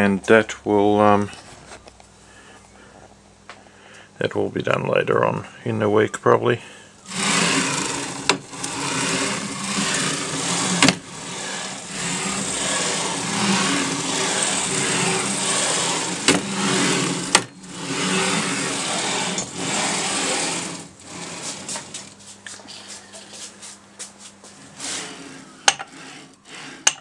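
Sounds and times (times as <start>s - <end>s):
bearings rattling along steel rails: 7.1s - 21.9s.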